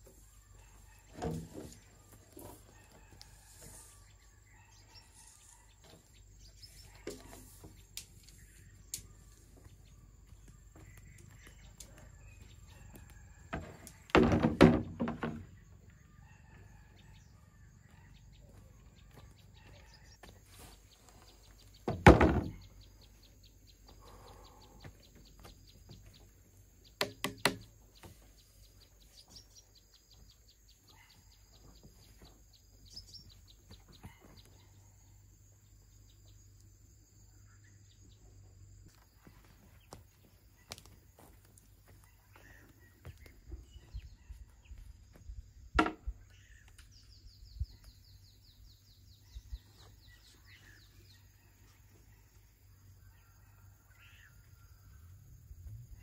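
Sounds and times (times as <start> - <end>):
faint bird chirps: 22.5 - 26.2.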